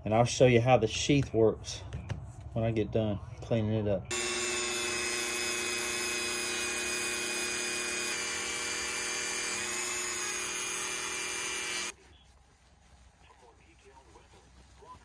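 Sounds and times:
rotary tool grinding metal: 0:04.1 - 0:11.9.

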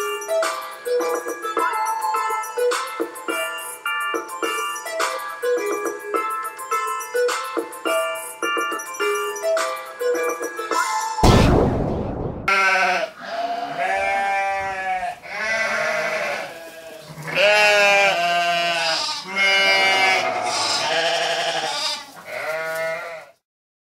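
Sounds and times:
loud burst of noise: 0:11.2 - 0:12.5
animal bleating: 0:12.5 - 0:23.4.

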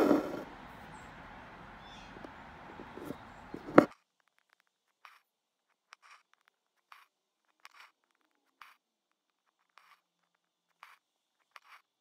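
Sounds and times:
thread rasping through fabric: 0:00.0 - 0:00.5, 0:10.7 - 0:11.9
faint handling: 0:00.0 - 0:03.9.

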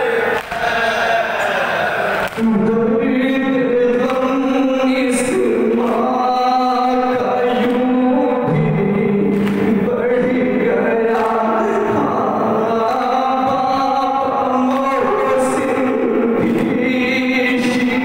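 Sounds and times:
man chanting a lament: 0:00.0 - 0:18.0.

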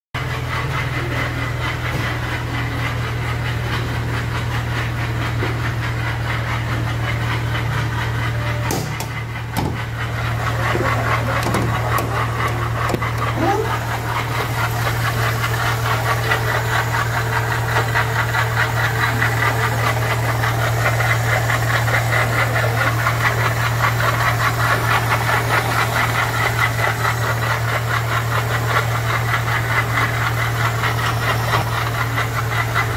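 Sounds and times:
car engine idling: 0:00.2 - 0:32.9
fast ticking knock: 0:08.7 - 0:18.0.

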